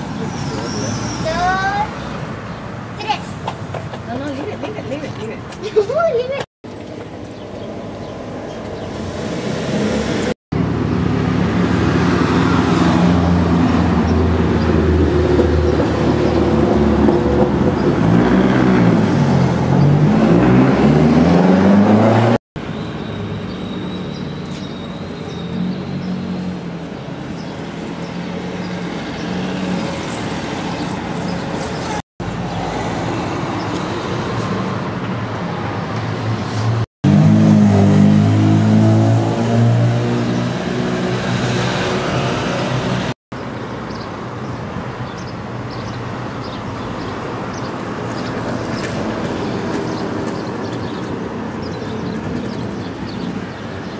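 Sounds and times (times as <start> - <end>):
vehicles passing: 0.0 - 53.9
car engine pulling away: 15.5 - 22.4, 37.0 - 43.0.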